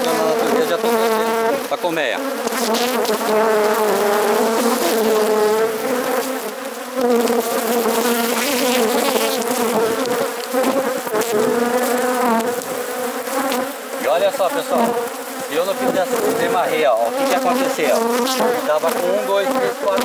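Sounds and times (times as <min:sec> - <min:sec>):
honeybees buzzing: 0:00.0 - 0:20.0.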